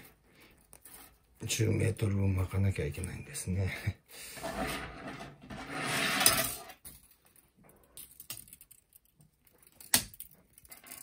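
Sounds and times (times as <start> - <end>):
copper wire scraping on wood: 4.4 - 6.8.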